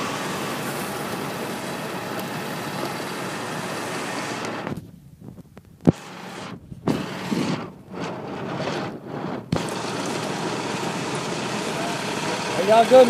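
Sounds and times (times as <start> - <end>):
golf cart running on dirt road: 0.0 - 5.1, 5.7 - 13.0
wind on microphone: 4.6 - 9.8.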